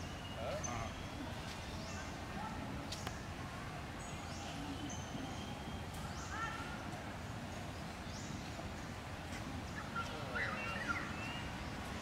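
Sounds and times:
high chirping calls: 9.7 - 11.8.

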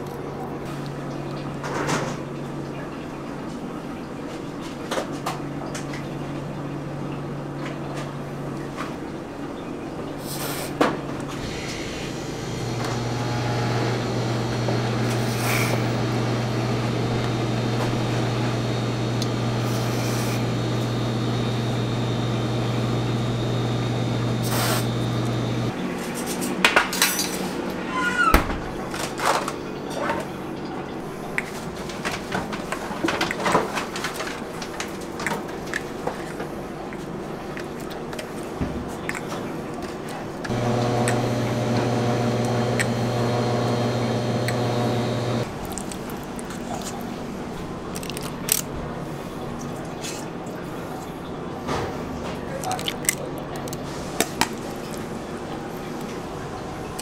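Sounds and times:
low mechanical hum: 11.0 - 25.8, 39.6 - 57.0.

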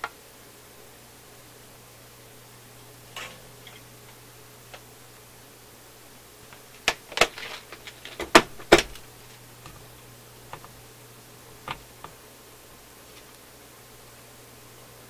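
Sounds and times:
small objects clattering on metal: 6.8 - 9.0.

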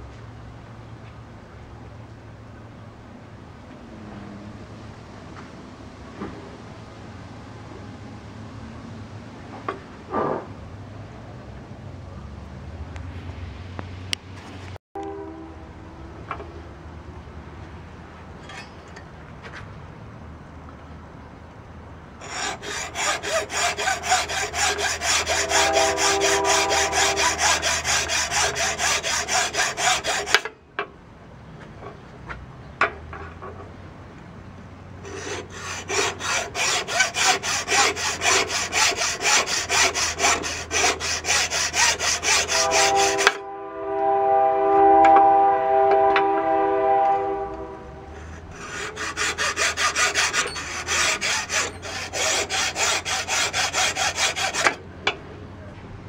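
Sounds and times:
hacksaw cutting stone: 22.2 - 30.5, 35.1 - 43.4, 48.5 - 54.8
saw blade squealing: 22.2 - 30.5, 35.1 - 43.4, 48.2 - 54.8.

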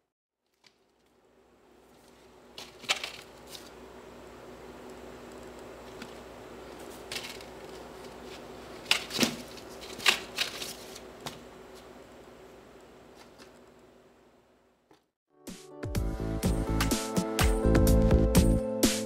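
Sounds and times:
faint steady hum: 0.4 - 15.1
cardboard trays rustling and scraping: 5.9 - 11.8.

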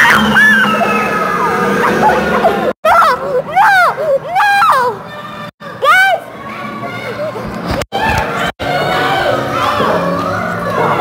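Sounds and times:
high-pitched wailing voices: 0.0 - 5.5.

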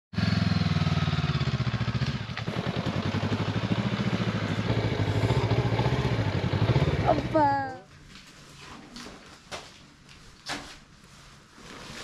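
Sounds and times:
motorcycle engine running: 0.1 - 7.8.

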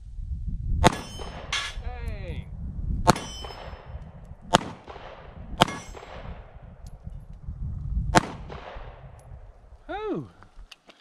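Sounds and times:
pistol shots: 0.8 - 1.8, 3.1 - 6.6, 8.1 - 9.0.

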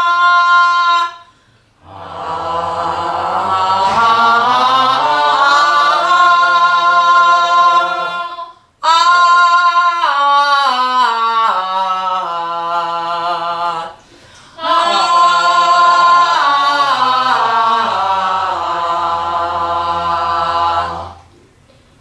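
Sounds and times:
woman singing unaccompanied: 3.6 - 14.0, 14.6 - 21.3.

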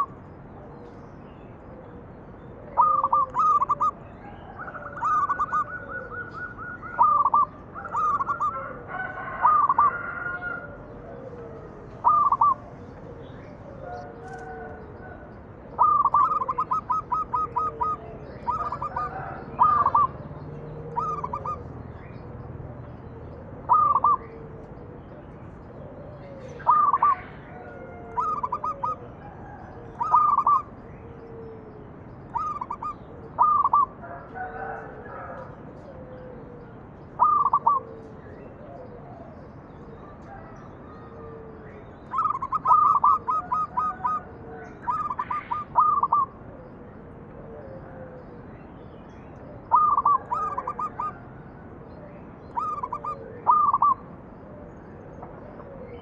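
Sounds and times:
dove cooing and trilling: 0.0 - 56.0.

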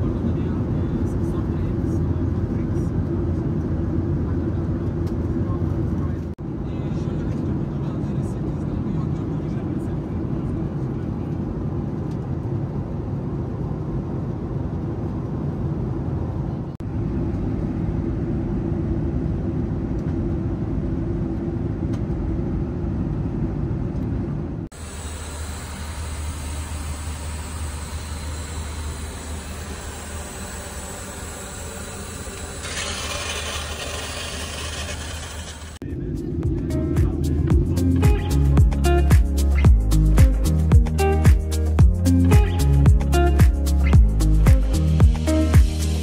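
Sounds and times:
airplane cabin and engine rumble: 0.0 - 38.3
steady low hum: 0.0 - 46.0.

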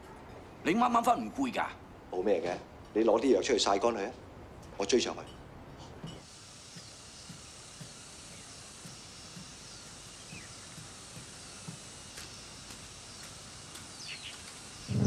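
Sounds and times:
bird chirps: 9.6 - 15.0.

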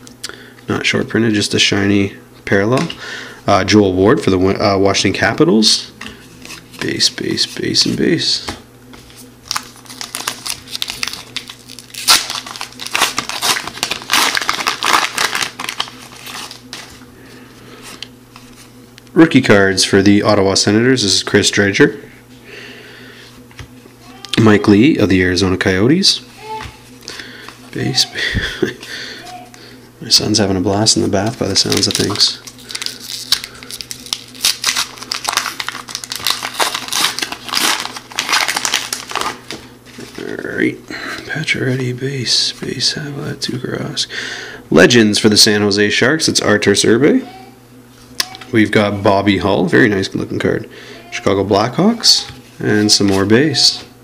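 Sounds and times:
wrapper tearing and crinkling: 9.5 - 16.9, 31.5 - 40.2.

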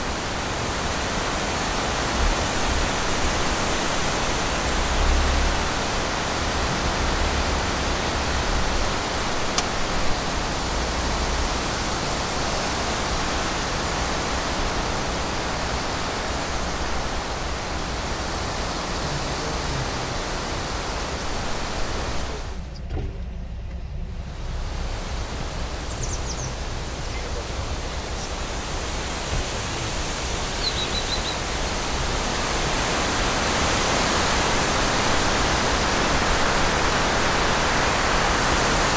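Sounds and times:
steady rushing noise: 0.0 - 22.7, 24.0 - 38.9.

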